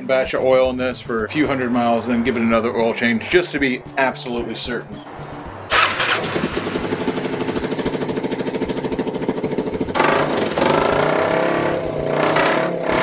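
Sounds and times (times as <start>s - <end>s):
motorcycle engine running: 5.1s - 13.0s.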